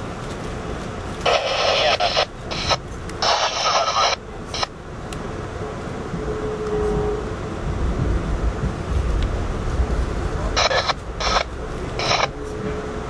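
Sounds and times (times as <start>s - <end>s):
train rumble from inside: 0.0s - 13.0s
radio static burst: 1.2s - 4.7s, 10.5s - 12.4s.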